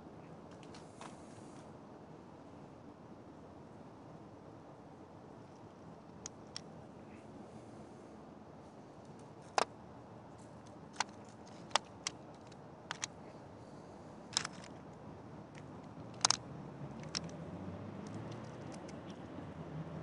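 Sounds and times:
faint room noise: 0.0 - 20.0
sharp clicks and taps: 15.6 - 16.4.

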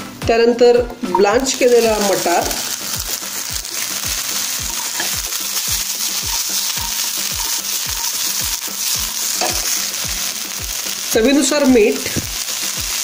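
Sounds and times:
vegetables sizzling in oil: 1.1 - 13.0.

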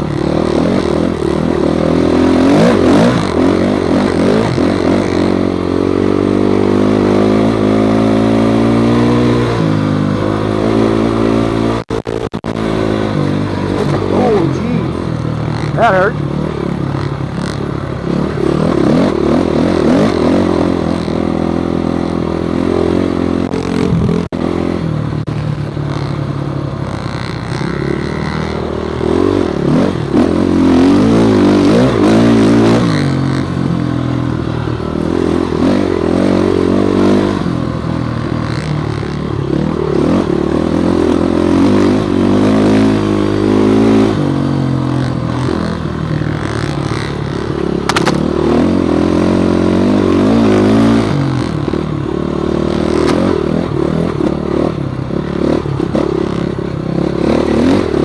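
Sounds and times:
dirt bike engine running hard: 0.0 - 58.0.

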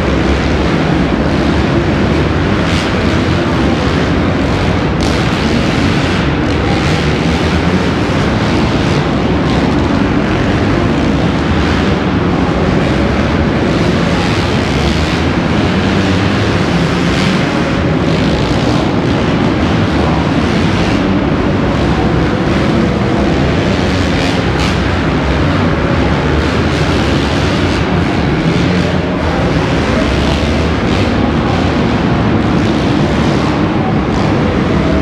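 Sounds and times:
motocross bikes revving: 0.0 - 35.0.

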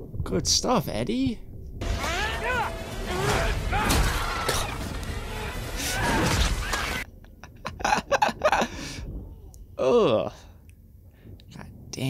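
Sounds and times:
action music: 1.8 - 7.0
crashing and smashing effects: 1.8 - 7.0
man laughing: 7.2 - 9.0.

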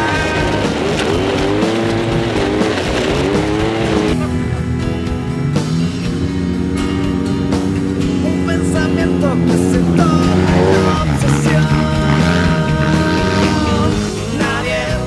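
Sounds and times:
background music with guitar: 0.0 - 15.0
engine revving: 0.0 - 15.0.

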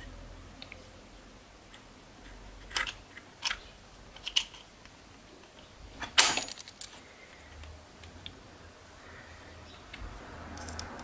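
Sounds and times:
metal parts clicking and knocking: 2.6 - 4.7, 6.0 - 7.0
metal parts rattling clatter: 6.0 - 7.0.

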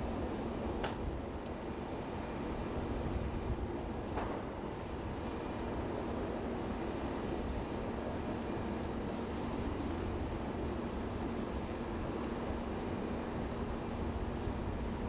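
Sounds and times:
fire roaring: 3.0 - 15.0.

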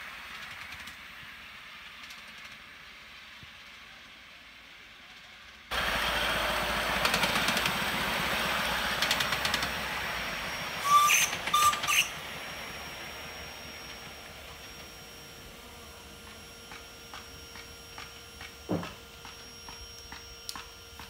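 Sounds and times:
steam locomotive running: 0.0 - 21.0
short high chirps: 10.8 - 12.2.

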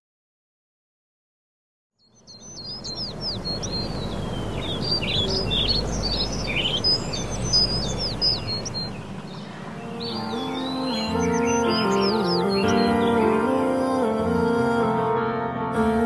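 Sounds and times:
small birds chirping: 2.0 - 13.8
steady background rush: 2.6 - 12.5.

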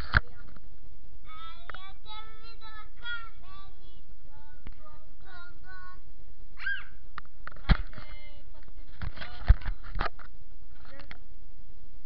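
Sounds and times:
child singing: 1.2 - 6.1.

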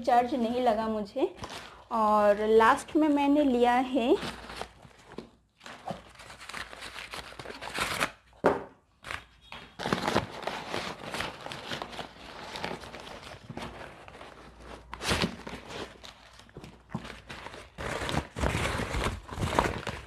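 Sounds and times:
paper packing rustling and tearing: 4.0 - 8.3, 9.0 - 20.0.

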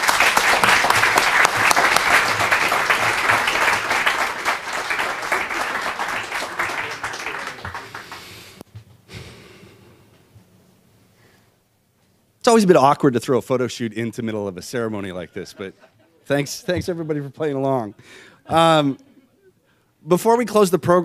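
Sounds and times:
audience applauding: 0.0 - 8.6.

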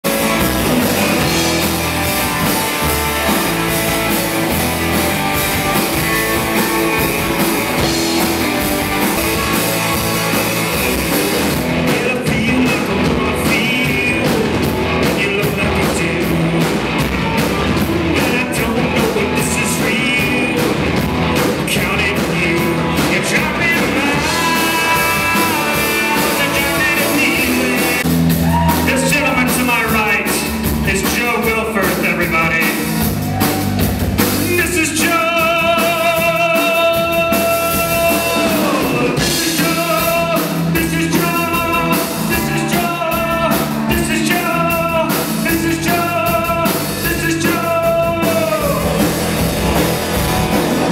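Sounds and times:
drum kit beat: 0.0 - 50.9
electric guitars: 0.0 - 50.9
person singing: 11.7 - 49.4.

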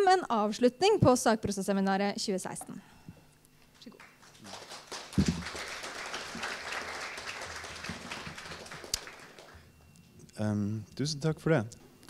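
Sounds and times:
audience applauding: 4.0 - 9.7.

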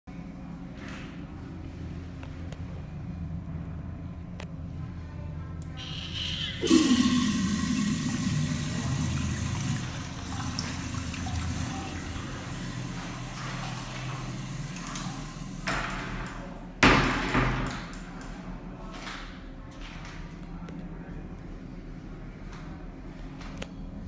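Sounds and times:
urinal flushing water: 5.7 - 16.5.

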